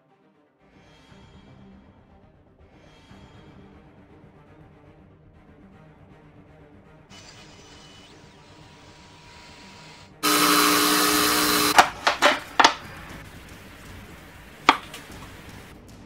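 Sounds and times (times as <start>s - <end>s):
router running: 10.2s - 12.8s
sharp knocks: 10.2s - 12.9s, 14.7s - 15.3s.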